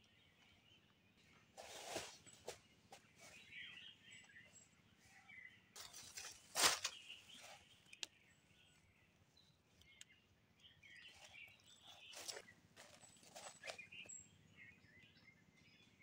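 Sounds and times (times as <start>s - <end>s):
small birds chirping: 0.0s - 16.0s
loud rustle of leaves: 5.9s - 7.6s.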